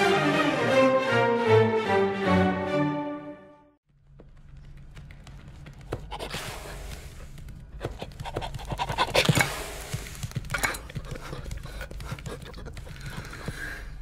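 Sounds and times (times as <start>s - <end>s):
paws clicking on floor: 4.0s - 14.0s
cartoon dog panting: 7.8s - 10.2s, 10.9s - 14.0s.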